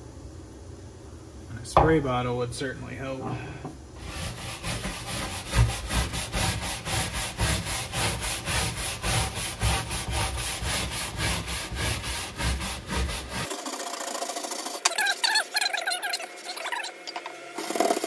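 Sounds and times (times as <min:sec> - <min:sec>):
scrub brush scrubbing deck: 0:04.0 - 0:18.0.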